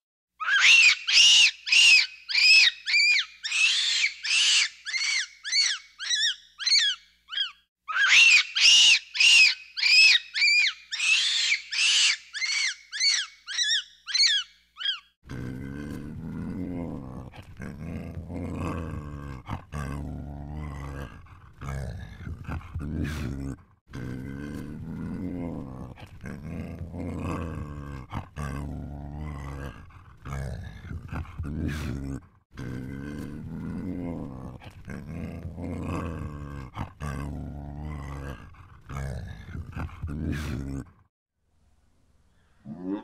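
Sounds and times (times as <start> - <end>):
monkey high calls: 0.4 - 15.1
lion low rumbling growl: 15.3 - 40.9.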